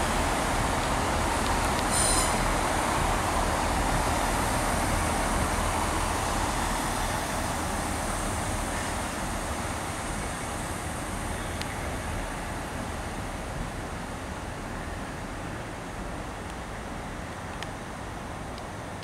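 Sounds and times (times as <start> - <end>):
train wheels rumbling on rails: 0.0 - 14.1.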